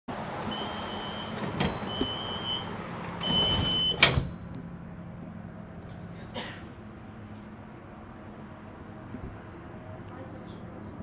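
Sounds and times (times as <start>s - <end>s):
tram low hum: 0.1s - 11.0s
door warning beeps: 0.5s - 4.4s
doors shutting with a bang: 1.3s - 4.4s.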